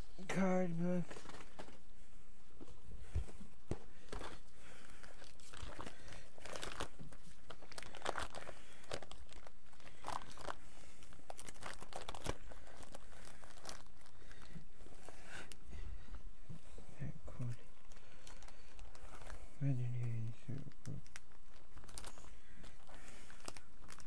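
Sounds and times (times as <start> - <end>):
plastic crinkling and rustling: 0.7 - 24.0.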